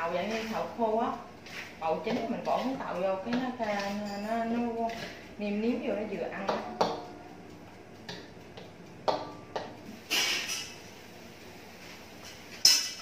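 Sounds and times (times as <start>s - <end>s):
spatula knocking on wok: 6.4s - 7.3s, 8.0s - 9.8s.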